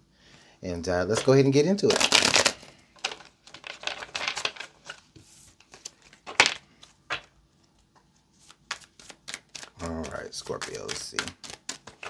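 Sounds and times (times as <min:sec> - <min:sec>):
cards being shuffled: 0:01.1 - 0:07.4, 0:08.4 - 0:12.0
sharp card taps and snaps: 0:08.7 - 0:12.0.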